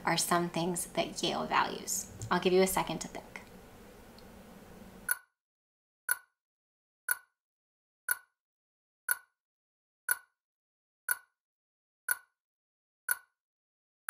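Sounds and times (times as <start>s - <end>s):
sharp timer ticks: 5.1s - 5.3s, 6.1s - 6.3s, 7.1s - 7.3s, 8.1s - 8.3s, 9.1s - 9.3s, 10.1s - 10.3s, 11.1s - 11.3s, 12.1s - 12.3s, 13.1s - 13.3s.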